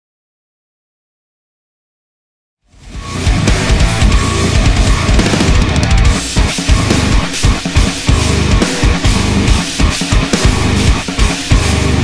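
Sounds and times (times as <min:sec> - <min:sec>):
heavy rock music: 0:02.7 - 0:12.0.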